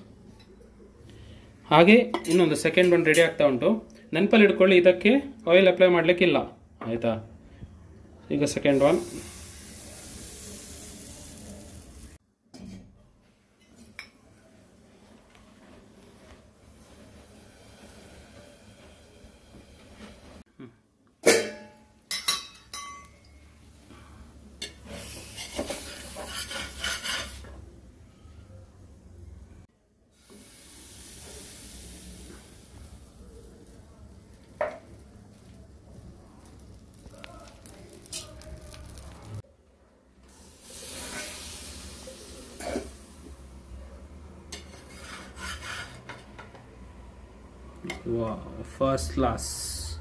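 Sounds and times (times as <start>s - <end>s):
hiss: 8.7s - 12.2s, 17.0s - 20.4s, 24.9s - 27.5s, 30.2s - 33.8s, 40.3s - 43.6s
metal utensils clanking on pots: 21.2s - 23.4s, 24.6s - 27.5s
metal utensil scraping clay pan: 24.6s - 27.5s, 44.5s - 46.3s.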